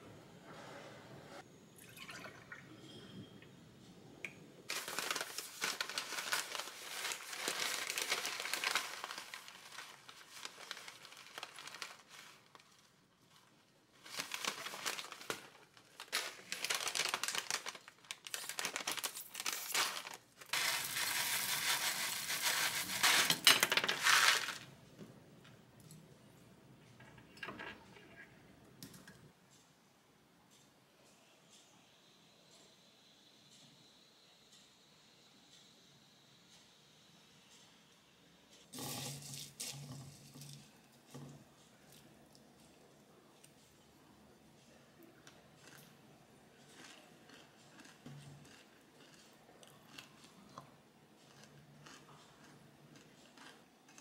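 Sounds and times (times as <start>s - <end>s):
milk pouring into a glass: 1.8s - 3.0s
cereal bag crinkling: 4.7s - 24.7s, 51.3s - 52.5s, 53.3s - 54.0s
dry cereal pouring into a glass: 16.5s - 24.7s, 38.8s - 40.7s.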